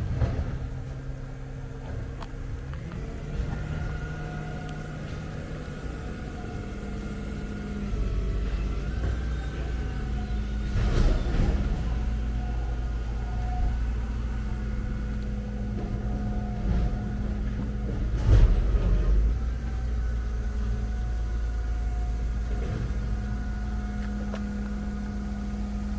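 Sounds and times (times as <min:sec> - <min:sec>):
scooter engine idling: 0:19.3 - 0:25.9.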